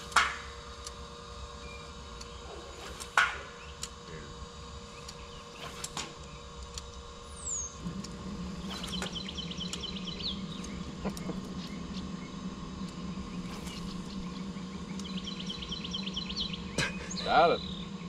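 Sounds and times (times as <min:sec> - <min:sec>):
electric motor humming: 0:00.0 - 0:18.0
songbird trilling: 0:07.3 - 0:07.8, 0:08.6 - 0:18.0.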